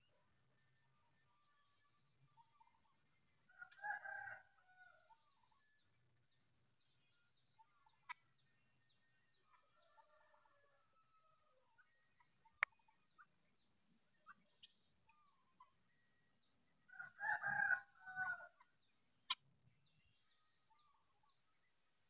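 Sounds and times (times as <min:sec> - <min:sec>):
faint bird chirps: 0:00.0 - 0:21.9
rooster crowing: 0:03.6 - 0:05.0, 0:16.9 - 0:18.6.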